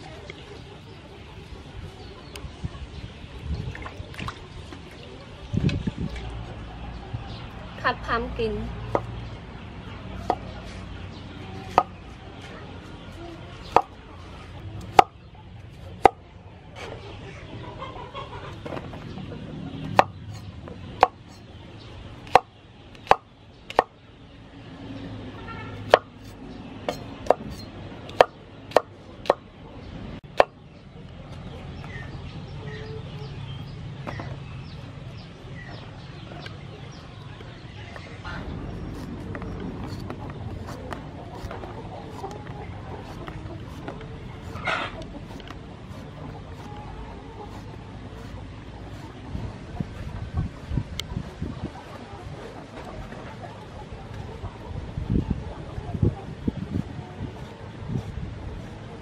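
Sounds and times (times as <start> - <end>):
cleaver chopping on wooden board: 14.8 - 15.2, 22.2 - 23.9, 25.9 - 29.4.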